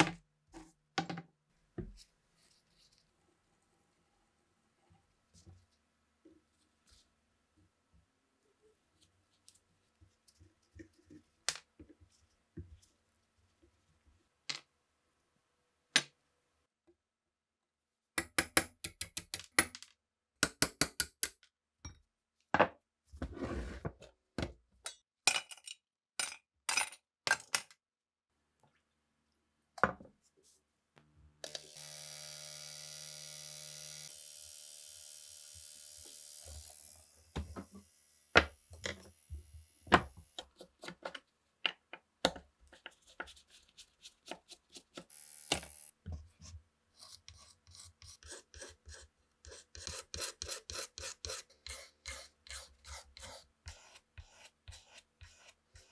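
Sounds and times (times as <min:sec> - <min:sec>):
vise scraping across bench: 0:23.2 - 0:24.0.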